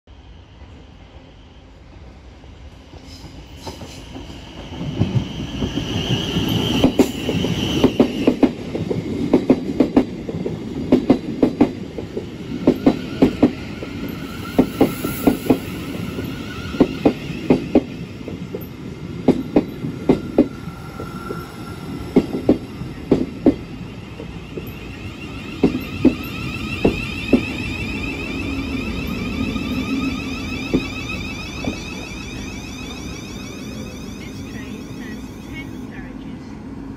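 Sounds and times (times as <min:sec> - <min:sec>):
train rumble: 0:00.5 - 0:36.9
high wheel squeal: 0:12.8 - 0:17.5, 0:24.0 - 0:35.9
train wheels clacking over rail joints: 0:25.6 - 0:27.6.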